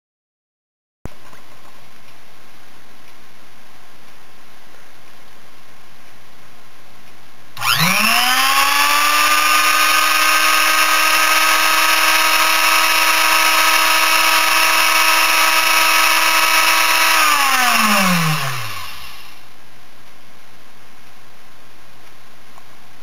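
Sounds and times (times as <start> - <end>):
spindle motor high whine: 7.6 - 19.4.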